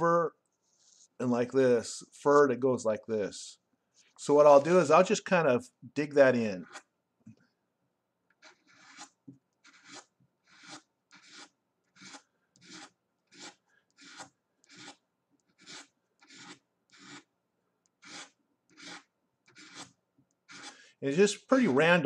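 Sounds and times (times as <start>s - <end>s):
paper clip scratching paper: 8.4s - 15.0s, 15.6s - 17.3s, 18.0s - 20.7s.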